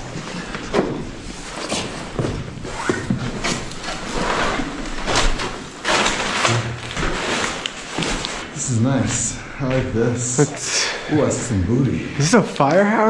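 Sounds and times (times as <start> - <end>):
rustling: 0.0 - 9.4.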